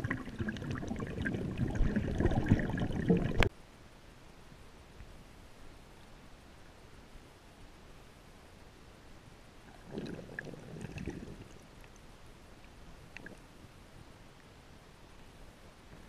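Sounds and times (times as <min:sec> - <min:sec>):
low rumbling water movement: 0:00.0 - 0:03.5, 0:09.6 - 0:14.0
faint underwater hiss: 0:00.0 - 0:16.0.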